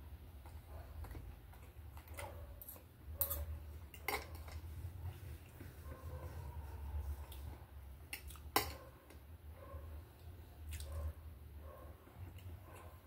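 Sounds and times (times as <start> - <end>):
low steady hum: 0.0 - 13.0
cutlery clinking on a plate: 4.0 - 4.6.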